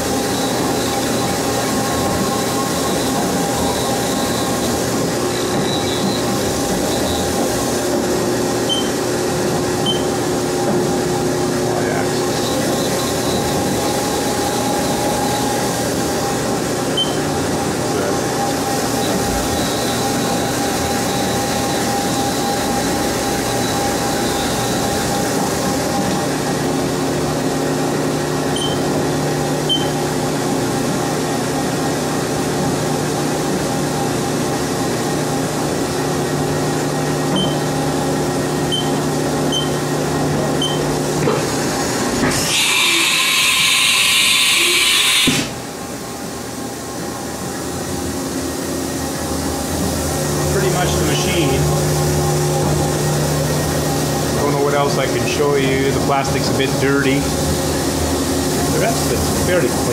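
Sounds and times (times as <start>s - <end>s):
milling machine humming: 0.0s - 59.9s
short high keypad beeps: 8.7s - 9.0s, 9.8s - 10.1s, 17.0s - 17.2s, 28.6s - 28.8s, 29.7s - 29.9s, 37.4s - 37.6s, 38.7s - 38.9s, 39.5s - 39.8s.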